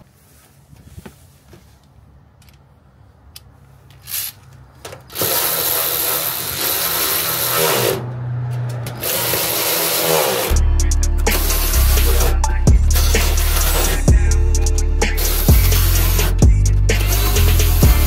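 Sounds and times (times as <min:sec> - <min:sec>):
cordless drill driving bolts: 0:04.0 - 0:10.6.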